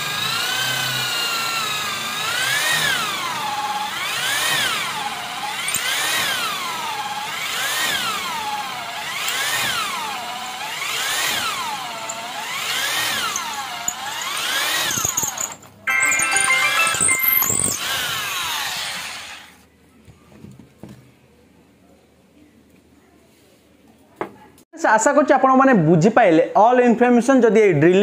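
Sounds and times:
electric drill boring into wood: 0.0 - 15.6, 17.4 - 19.6.

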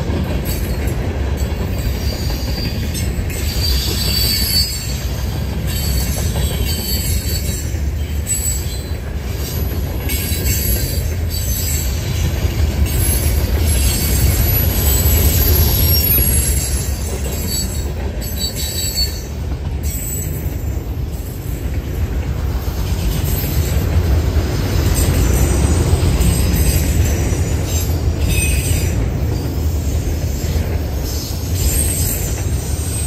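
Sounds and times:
freight train rumbling past: 0.0 - 33.0
high-pitched wheel squeal: 2.0 - 8.9, 13.0 - 19.3.

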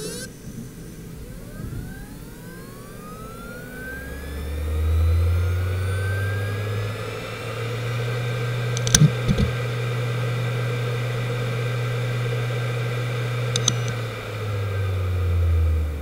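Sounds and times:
hard drive whine and hum: 0.0 - 16.0
hard drive clicks: 8.7 - 9.6, 13.5 - 14.0.

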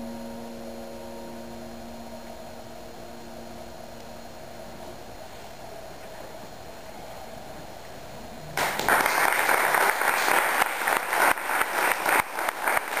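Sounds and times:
audience applause: 8.6 - 13.0.

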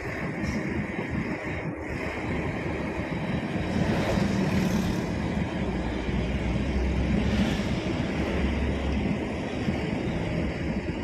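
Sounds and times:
road noise rushing: 0.0 - 11.0
vehicle engine hum: 0.0 - 11.0
wind on the microphone: 0.0 - 11.0.

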